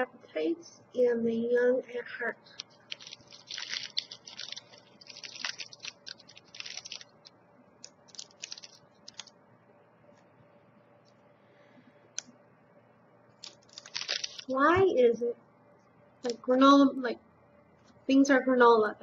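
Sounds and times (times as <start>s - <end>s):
faint steady hum: 0.0s - 19.0s
plastic wrapper crinkling: 2.4s - 9.4s, 13.4s - 14.6s.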